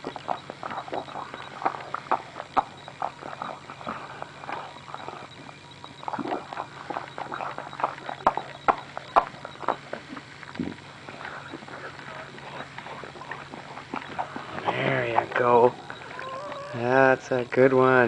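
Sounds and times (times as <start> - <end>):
dog licking puppy: 0.0 - 16.8.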